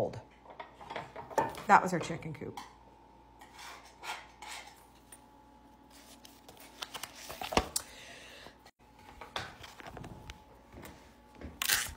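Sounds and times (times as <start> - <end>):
magazine pages rustling: 5.8 - 7.8.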